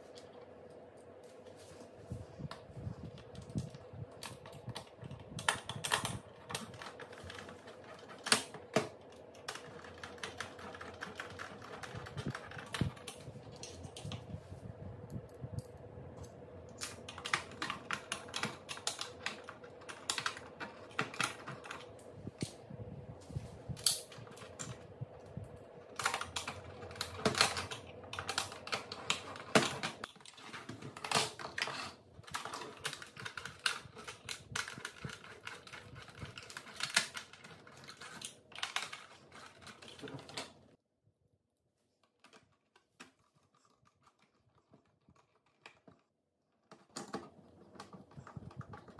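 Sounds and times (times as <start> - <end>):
faint steady hum: 0.0 - 40.8
plastic clicks and rattles: 25.9 - 40.6.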